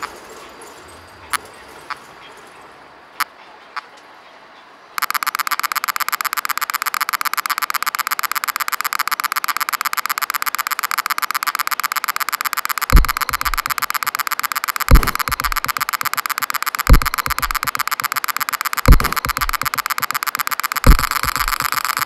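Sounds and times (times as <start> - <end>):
rapid buzzing electronic pulse: 5.0 - 22.0
deep bass thumps: 13.0 - 13.7, 14.9 - 15.8, 16.9 - 17.8, 18.9 - 19.8, 20.9 - 21.6.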